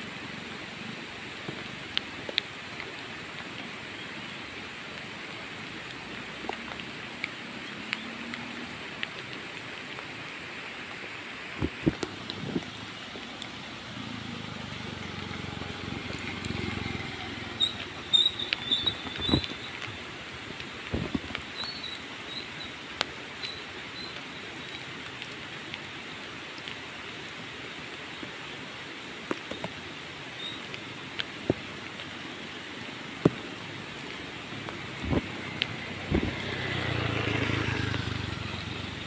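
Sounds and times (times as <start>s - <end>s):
rain drips: 0.0s - 39.0s
motor scooters passing: 12.7s - 20.0s, 34.5s - 39.0s.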